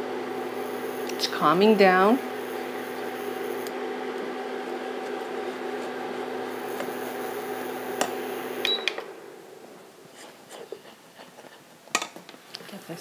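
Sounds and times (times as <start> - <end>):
induction cooktop hum: 0.0 - 10.1
cooktop fan: 0.0 - 13.0.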